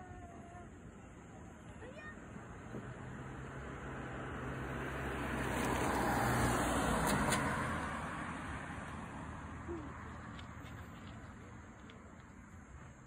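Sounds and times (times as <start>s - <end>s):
car driving past: 2.3s - 11.4s.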